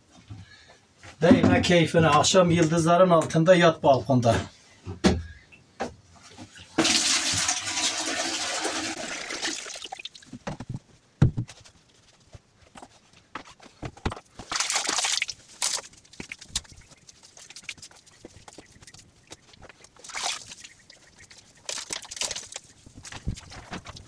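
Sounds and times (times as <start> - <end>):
water pouring into plastic bucket: 6.8 - 10.2, 14.5 - 15.8, 20.0 - 20.6.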